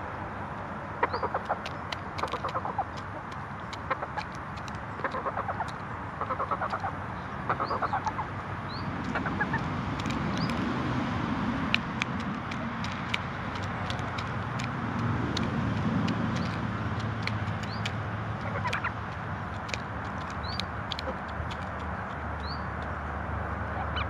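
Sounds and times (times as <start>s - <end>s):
passing traffic rumble: 0.0s - 24.0s
hens clucking: 1.0s - 8.3s, 9.0s - 10.6s, 15.3s - 21.9s
beaks ticking on plastic scoop: 1.0s - 23.0s.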